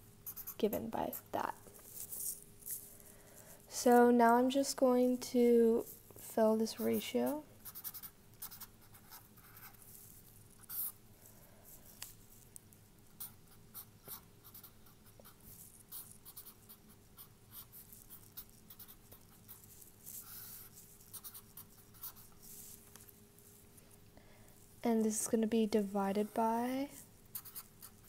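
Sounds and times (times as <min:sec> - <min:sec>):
marker pen scratching on paper: 0:00.2 - 0:02.8, 0:05.8 - 0:12.4, 0:13.1 - 0:23.7, 0:26.9 - 0:28.0.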